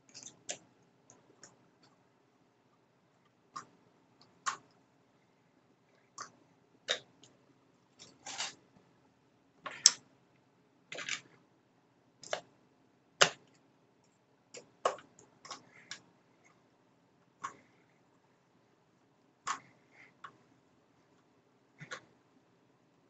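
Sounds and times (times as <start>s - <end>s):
hands handling hard plastic: 8.0s - 8.6s.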